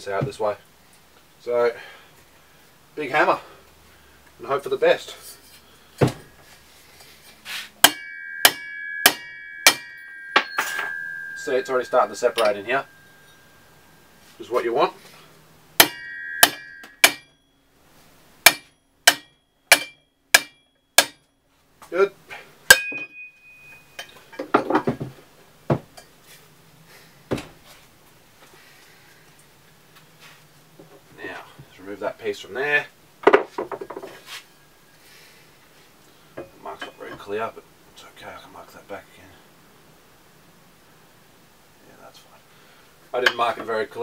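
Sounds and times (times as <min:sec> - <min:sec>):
sharp knocks: 0:07.8 - 0:11.5, 0:15.8 - 0:17.3, 0:18.4 - 0:21.2
hammer striking steel shaft: 0:07.8 - 0:13.7, 0:15.8 - 0:17.4, 0:18.4 - 0:21.3, 0:22.7 - 0:24.2
steel tube ringing: 0:07.8 - 0:14.6, 0:15.8 - 0:17.7, 0:18.4 - 0:21.3, 0:22.7 - 0:24.4.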